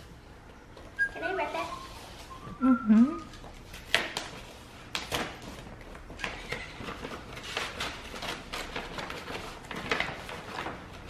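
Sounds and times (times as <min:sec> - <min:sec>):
paper tearing and rustling: 0:03.6 - 0:11.0.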